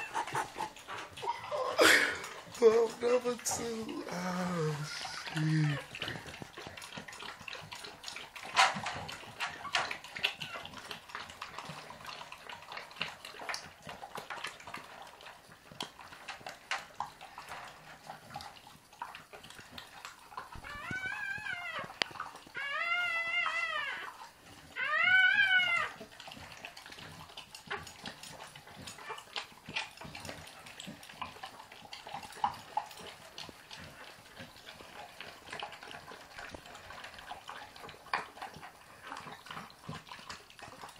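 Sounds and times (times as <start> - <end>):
puppy whining cries: 0.0 - 2.4, 20.6 - 26.1
dog licking wet slurps: 0.0 - 40.9.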